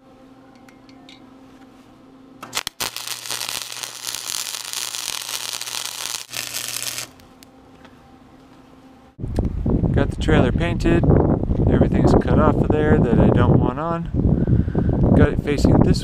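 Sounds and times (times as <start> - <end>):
electric arc welding crackle: 2.4 - 7.4.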